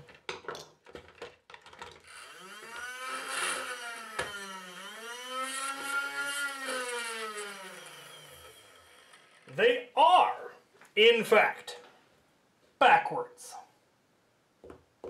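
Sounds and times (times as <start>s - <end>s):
flywheel motors whining: 2.0s - 9.5s.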